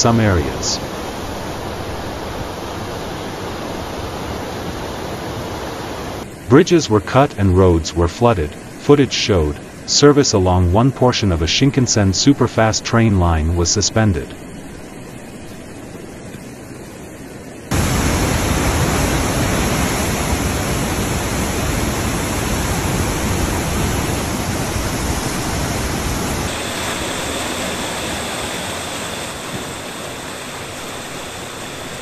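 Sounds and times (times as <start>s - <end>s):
floodwater rushing: 17.7s - 32.0s.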